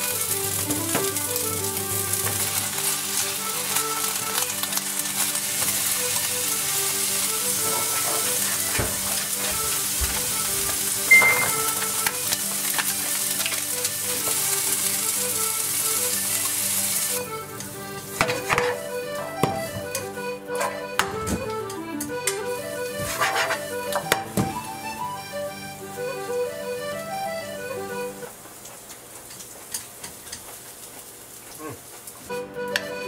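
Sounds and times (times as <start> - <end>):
vegetables sizzling in a frying pan: 0.0 - 20.2, 22.4 - 32.4
chopsticks stirring in a pan: 0.0 - 25.0, 28.2 - 32.4
quiet background music: 0.0 - 33.0
short high ping: 11.1 - 11.6.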